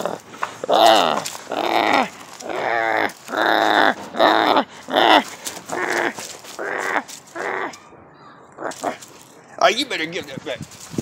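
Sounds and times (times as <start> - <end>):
puppy growling: 0.0 - 7.8, 8.6 - 9.1.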